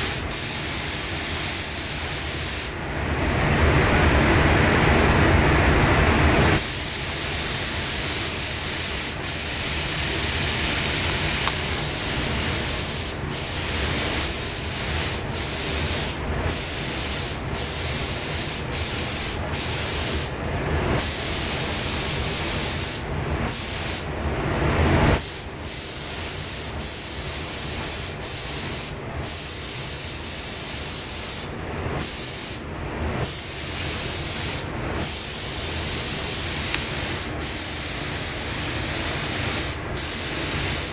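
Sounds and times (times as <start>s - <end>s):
paint spray gun hissing: 0.0s - 2.8s, 6.6s - 20.3s, 21.0s - 24.1s, 25.2s - 32.6s, 33.2s - 40.9s
low steady rumble: 0.0s - 29.8s.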